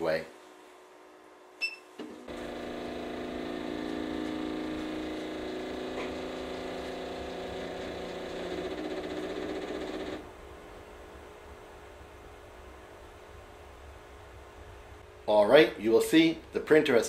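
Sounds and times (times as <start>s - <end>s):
stepper motors humming: 2.3s - 10.3s.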